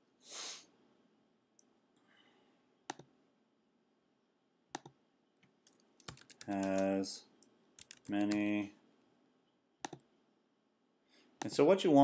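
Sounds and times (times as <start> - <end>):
computer mouse clicks: 2.9 - 3.1, 4.7 - 8.5, 9.8 - 10.1.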